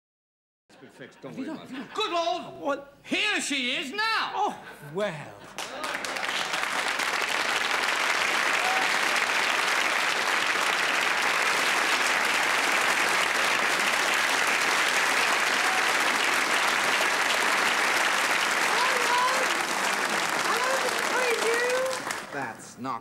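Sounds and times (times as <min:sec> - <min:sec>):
studio audience applauding: 0:05.6 - 0:22.6.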